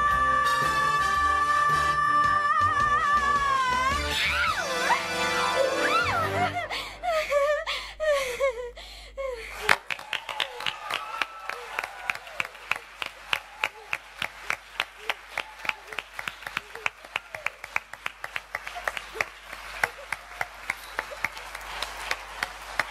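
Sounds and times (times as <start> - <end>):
audience clapping in rhythm: 9.5 - 22.9.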